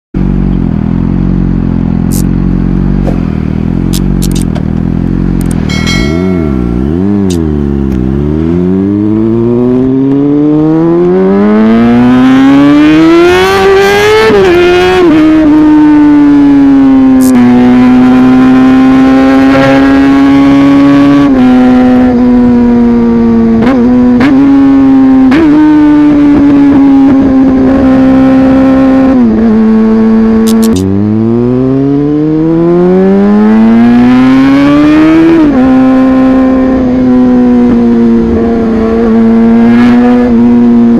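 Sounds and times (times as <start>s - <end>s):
motorcycle engine running: 0.2s - 40.9s
engine rev blip: 5.4s - 9.6s, 30.4s - 31.6s.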